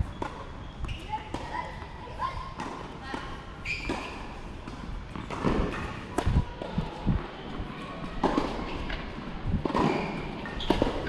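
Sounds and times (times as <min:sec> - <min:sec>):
tennis balls bouncing: 0:02.5 - 0:06.7
racket hitting ball: 0:03.9 - 0:06.4.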